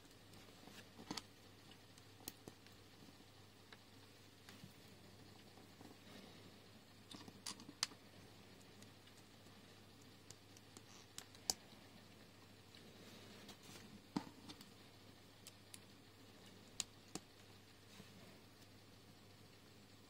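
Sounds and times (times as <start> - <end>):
faint room hum: 0.0 - 20.0.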